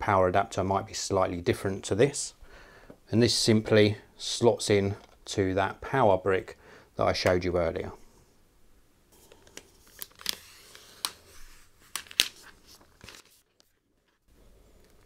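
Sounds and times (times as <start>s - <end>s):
plastic wrap crinkling and rustling: 9.4s - 14.3s.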